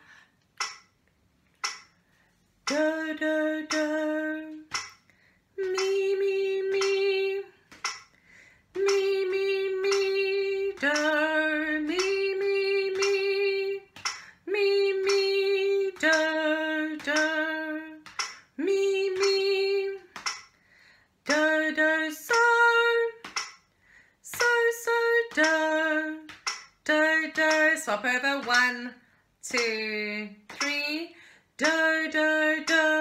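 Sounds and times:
woman singing held notes: 0:05.6 - 0:07.7.

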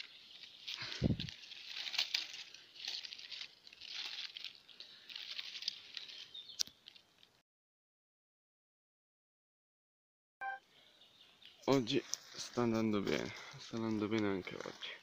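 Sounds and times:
dry leaves rustling and crackling: 0:00.0 - 0:07.4
twig snapping: 0:00.4 - 0:07.4.

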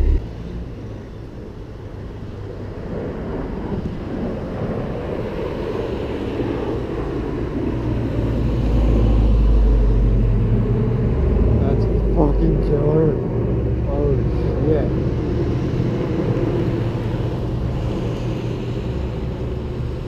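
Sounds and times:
airplane engine overhead: 0:00.0 - 0:20.0.

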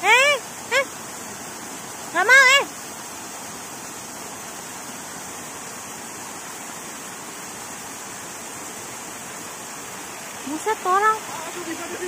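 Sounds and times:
mountain water rushing: 0:00.0 - 0:12.0.

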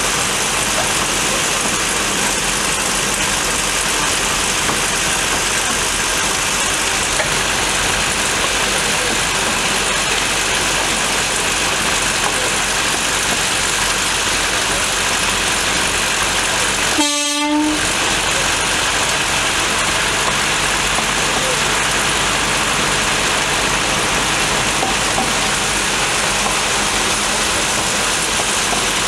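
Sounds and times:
steady loud hissing: 0:00.0 - 0:17.1, 0:17.7 - 0:29.0
locomotive whistle toot: 0:16.9 - 0:18.0.

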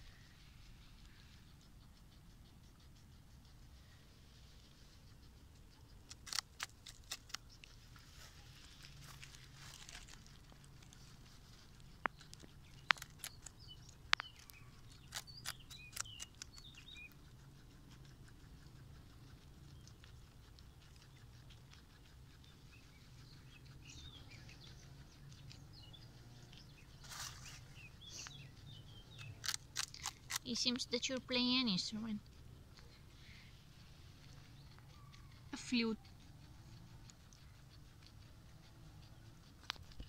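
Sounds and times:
guinea pig chewing crunchy stalk: 0:00.0 - 0:40.0.

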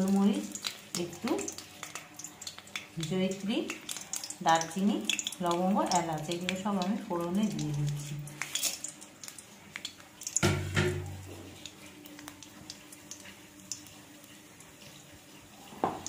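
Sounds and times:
spices clattering into pan: 0:00.0 - 0:06.6, 0:07.4 - 0:14.0
faint crackles in hot oil: 0:00.0 - 0:16.0
knock in pan: 0:10.4 - 0:11.3, 0:15.8 - 0:16.0.

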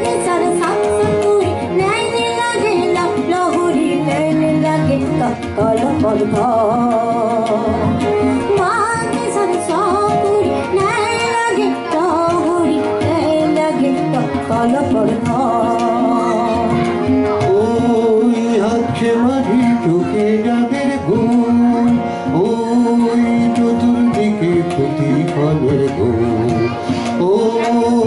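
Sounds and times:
harmonium chords: 0:00.0 - 0:28.0
tabla drums: 0:00.0 - 0:28.0
man singing: 0:05.4 - 0:08.1, 0:14.4 - 0:28.0.

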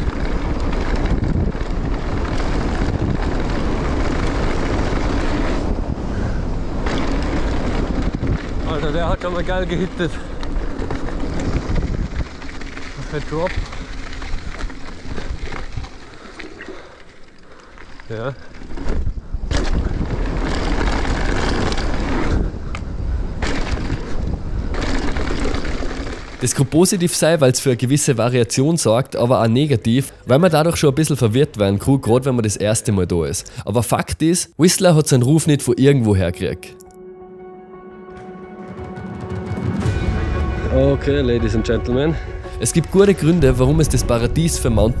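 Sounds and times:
wind rushing over microphone: 0:00.0 - 0:16.2, 0:18.2 - 0:26.8, 0:39.4 - 0:45.0
bike rumble and rattle: 0:00.0 - 0:26.9.

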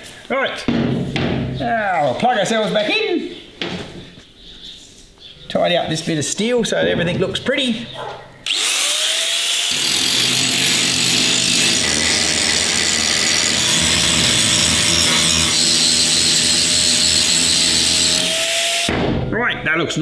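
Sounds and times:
angle grinder grinding metal: 0:08.5 - 0:18.9.

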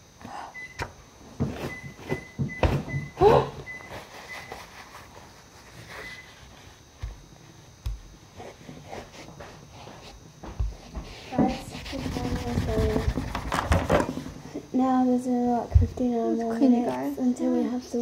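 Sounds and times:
objects knocking and rustling on table: 0:10.4 - 0:14.4.

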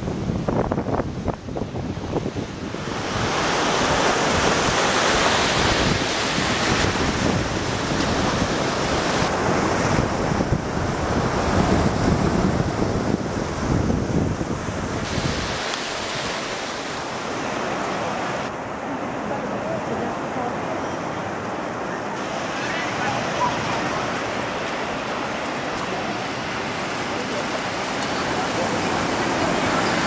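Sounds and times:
wind buffeting microphone: 0:00.0 - 0:18.5
waves breaking on beach: 0:00.0 - 0:30.0.

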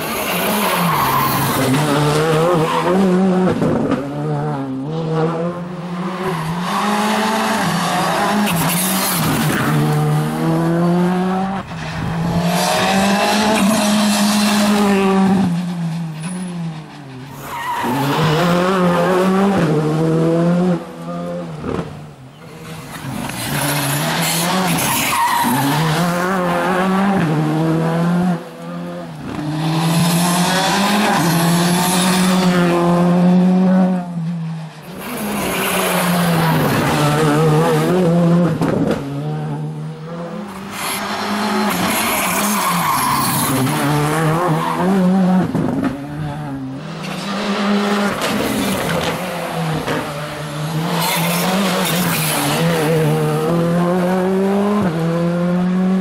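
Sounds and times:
rally car engine revving: 0:00.0 - 0:56.0.

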